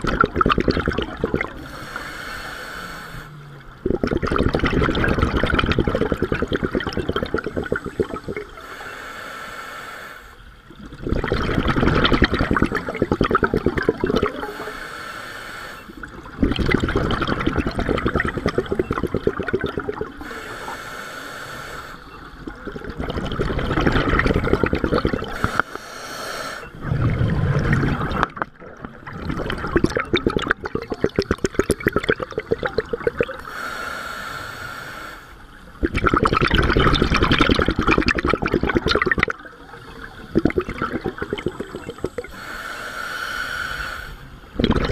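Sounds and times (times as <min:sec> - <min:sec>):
bubbling exhalation underwater: 0:00.0 - 0:01.7, 0:03.4 - 0:08.5, 0:10.8 - 0:14.6, 0:16.0 - 0:20.3, 0:22.4 - 0:25.6, 0:26.7 - 0:33.4, 0:35.8 - 0:42.3, 0:44.5 - 0:44.9
regulator hiss: 0:01.6 - 0:03.4, 0:07.6 - 0:10.5, 0:14.3 - 0:16.0, 0:20.2 - 0:22.4, 0:25.3 - 0:26.8, 0:33.4 - 0:35.6, 0:41.2 - 0:44.5.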